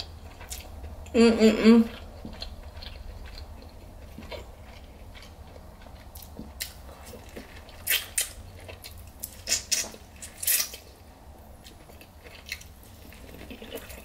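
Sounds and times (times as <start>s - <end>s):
person chewing: 0.0s - 14.0s
mouth smacks and crunches: 2.0s - 10.9s.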